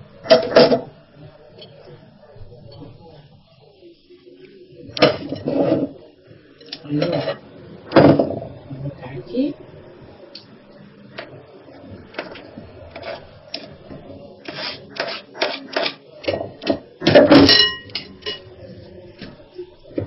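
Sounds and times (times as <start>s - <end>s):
spoon scraping cutting board: 12.1s - 13.7s, 14.4s - 16.0s
spoon clattering against glass bowl: 17.2s - 18.5s.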